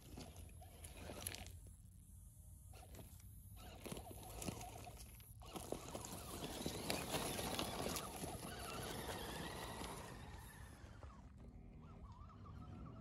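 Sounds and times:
toy truck drivetrain rattle: 0:02.8 - 0:11.3
tyres crunching on stones: 0:03.6 - 0:10.3.

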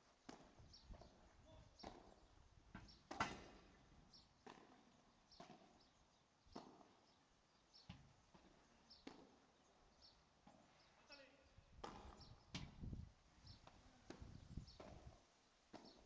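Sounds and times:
ball bouncing on court: 0:01.8 - 0:03.6, 0:04.4 - 0:04.8, 0:07.9 - 0:09.4, 0:11.8 - 0:12.7
padel ball struck by rackets: 0:01.8 - 0:03.7, 0:04.4 - 0:05.7, 0:07.9 - 0:09.4, 0:11.8 - 0:12.8.

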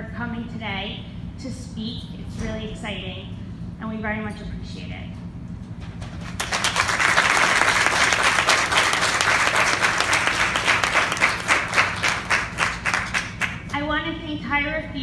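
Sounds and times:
audience applauding: 0:06.0 - 0:13.7.

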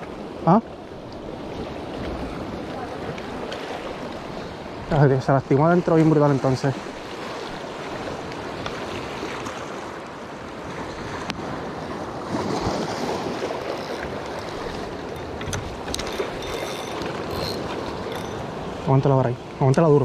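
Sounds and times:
waves washing over rocky shore: 0:00.0 - 0:15.9.

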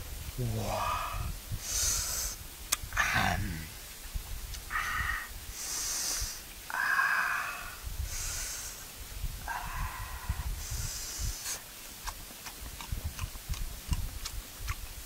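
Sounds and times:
person breathing heavily: 0:00.6 - 0:02.4, 0:04.6 - 0:11.6.

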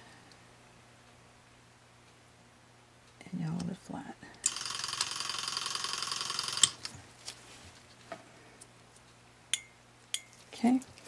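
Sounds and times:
instrument sharpener buzzing: 0:04.4 - 0:06.9.

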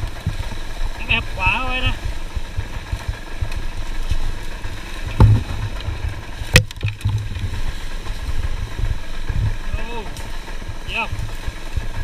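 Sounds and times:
dirt bike engine at low revs: 0:00.0 - 0:12.0
heavy thump: 0:05.1 - 0:07.6
sharp knock: 0:05.2 - 0:05.7.

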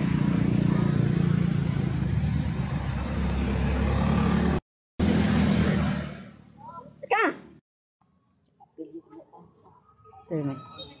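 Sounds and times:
motor engine running: 0:00.0 - 0:03.4.

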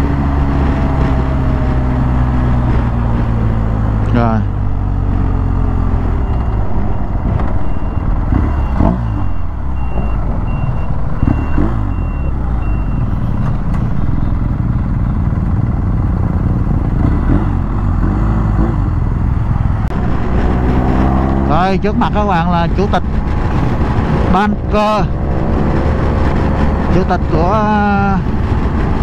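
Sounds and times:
wind and road noise: 0:00.0 - 0:29.0
high beeping: 0:06.0 - 0:14.3.

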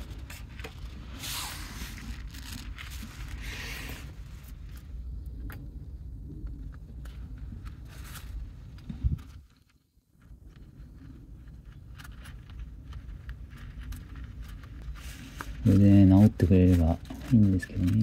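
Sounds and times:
packaging tearing and rustling: 0:00.0 - 0:04.8, 0:11.7 - 0:18.0.

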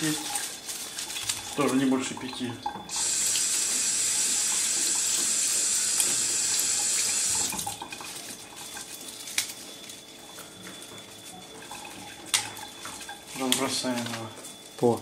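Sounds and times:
tap water running: 0:00.0 - 0:08.9, 0:11.4 - 0:13.8.

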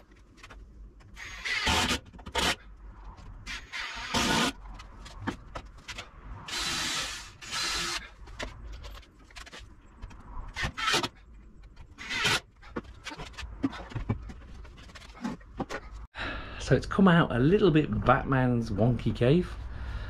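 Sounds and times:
cordless drill driving screws: 0:01.2 - 0:02.6, 0:03.5 - 0:04.5, 0:06.5 - 0:08.0.

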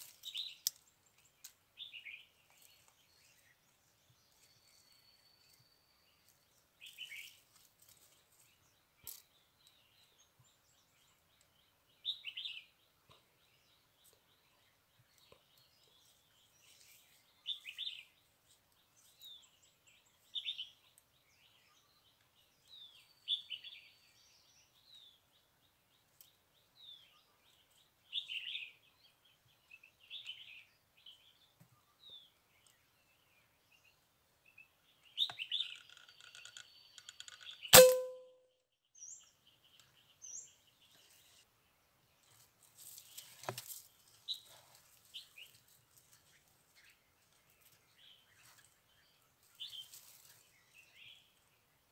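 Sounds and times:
small birds chirping: 0:00.0 - 0:37.8, 0:38.8 - 0:51.9
air rifle firing: 0:37.8 - 0:38.2
brief ringing tone: 0:37.8 - 0:38.4.

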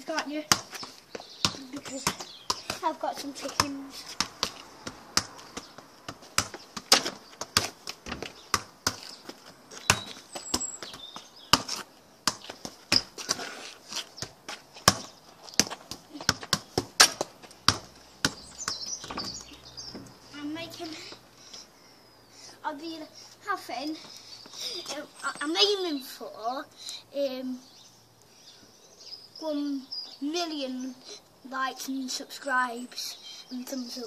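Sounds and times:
football thudding off wall and ground: 0:00.4 - 0:13.5, 0:14.2 - 0:20.1.

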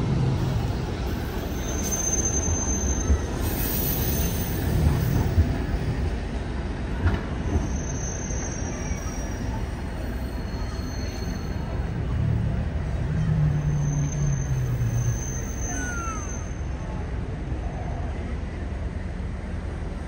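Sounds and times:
tram wheels rumbling on rail: 0:00.0 - 0:20.0
high wheel squeal: 0:00.4 - 0:05.4, 0:07.4 - 0:12.0, 0:13.4 - 0:17.0.

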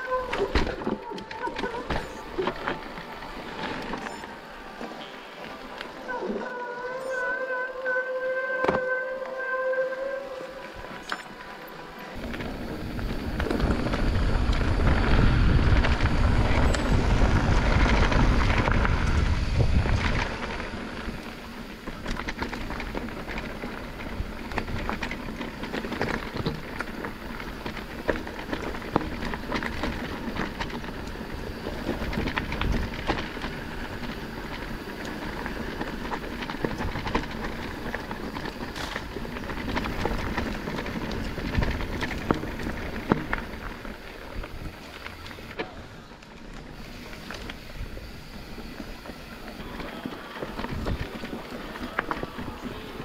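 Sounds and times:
bike clicks and rattles: 0:00.0 - 0:53.0
bike tyre noise: 0:00.0 - 0:53.0
wind rumble on microphone: 0:12.2 - 0:45.6, 0:47.2 - 0:53.0.

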